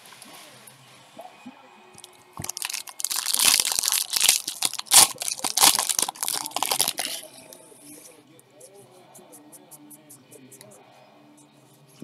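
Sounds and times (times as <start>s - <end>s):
foil wrapper crinkling and tearing: 2.0s - 7.4s.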